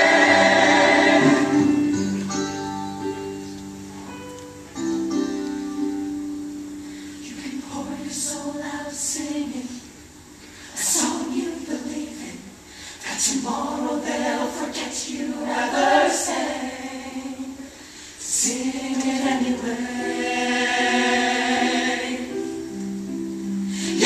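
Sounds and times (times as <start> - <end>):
choir singing in harmony: 0.0 - 2.2, 7.2 - 10.0, 10.7 - 24.0.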